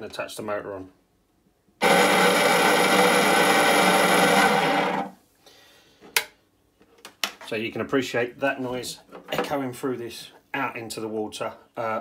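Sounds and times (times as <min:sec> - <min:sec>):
motor drone: 0:01.8 - 0:05.1.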